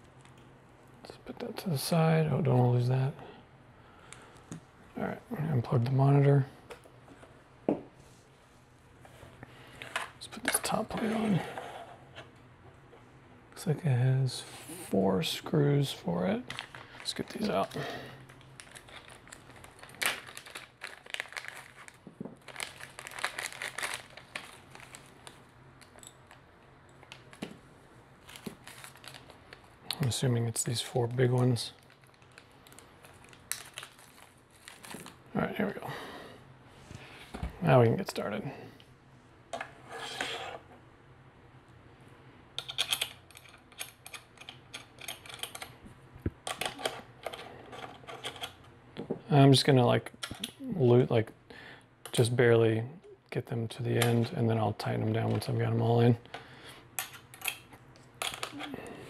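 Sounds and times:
plastic bag crinkling: 16.5s - 27.5s, 28.2s - 30.1s, 31.0s - 35.5s.

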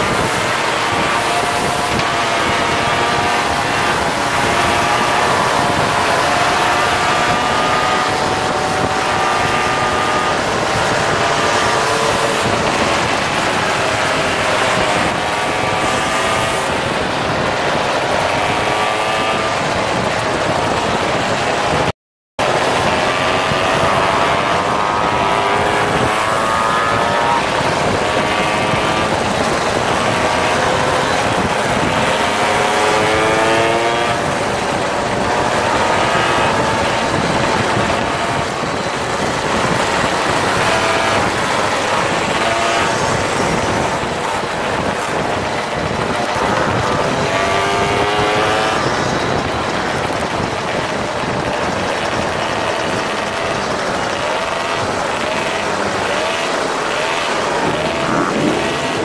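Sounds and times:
moped engines accelerating: 0.0s - 59.0s
road and wind noise: 0.0s - 59.0s.

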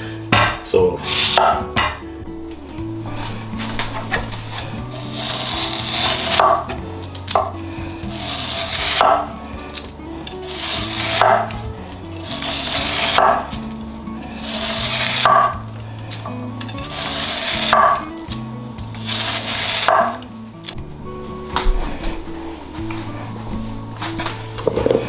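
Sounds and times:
knife scraping yam skin: 1.0s - 1.7s, 4.1s - 20.8s.

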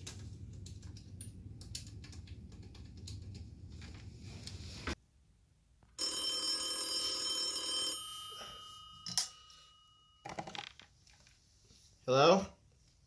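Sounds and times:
telephone bell ringing: 6.0s - 10.4s.

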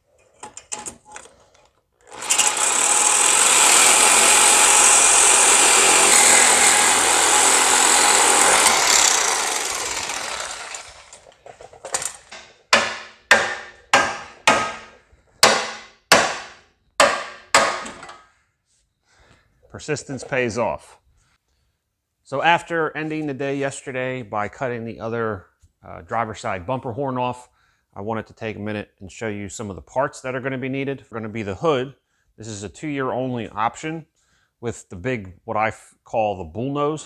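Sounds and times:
reciprocating saw cutting metal: 2.1s - 11.3s.

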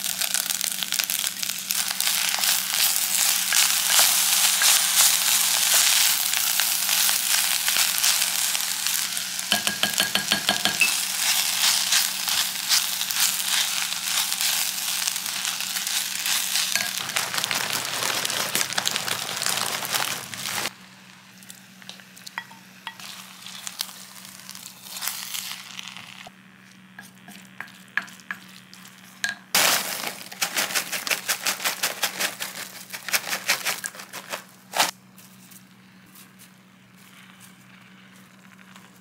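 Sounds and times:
rice sizzling in a pot: 0.0s - 34.9s
steady low hum: 0.7s - 31.0s
wooden spoons scraping: 1.8s - 20.7s.

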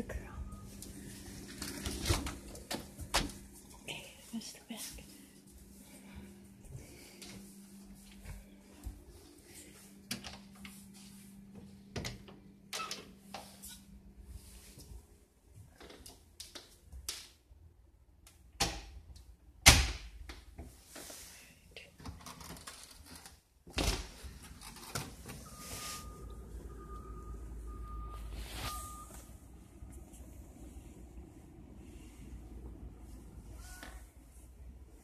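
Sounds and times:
steady low hum: 0.0s - 15.7s, 24.1s - 35.0s.

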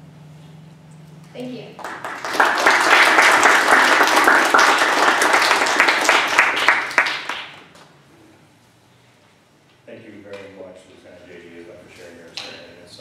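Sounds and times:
audience applauding: 1.8s - 7.9s.

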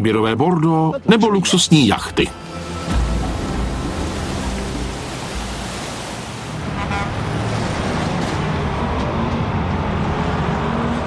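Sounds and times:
road traffic rumble: 1.6s - 11.0s
short higher-pitched note: 1.9s - 5.7s.

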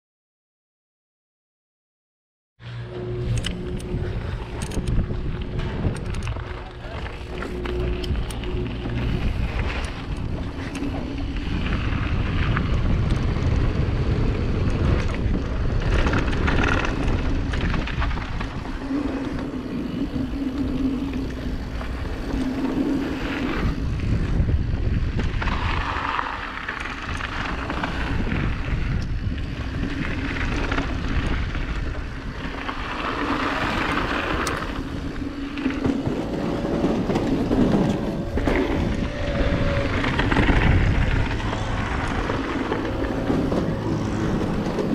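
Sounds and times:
wind buffeting microphone: 2.9s - 44.9s
bike tyres crunching on gravel: 3.9s - 44.9s.

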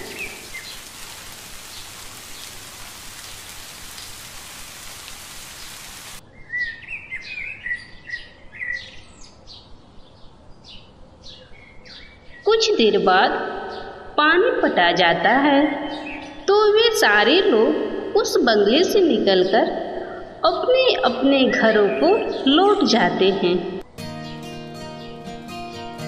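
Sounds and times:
birds chirping: 0.0s - 6.2s
rain hissing: 0.0s - 6.2s.

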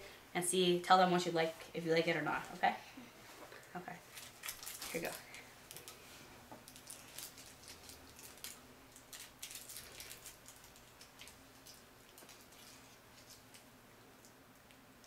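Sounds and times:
paper liner crinkling: 4.1s - 13.7s.

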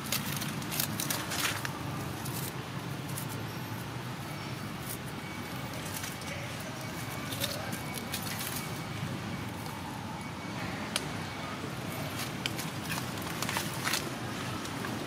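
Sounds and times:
dry leaves crackling: 0.0s - 9.9s, 11.9s - 15.0s.

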